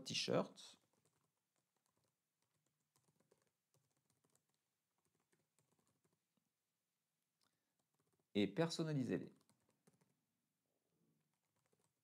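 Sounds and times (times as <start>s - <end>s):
faint keyboard typing: 0.7s - 6.5s, 7.4s - 8.3s, 9.2s - 10.3s, 11.2s - 12.0s.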